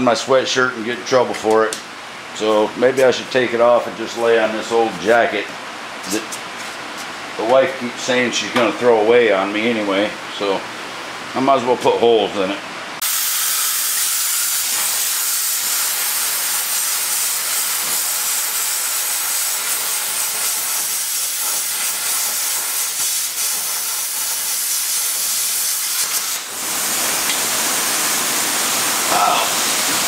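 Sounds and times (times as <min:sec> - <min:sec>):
plasma cutter hissing: 0:13.0 - 0:30.0.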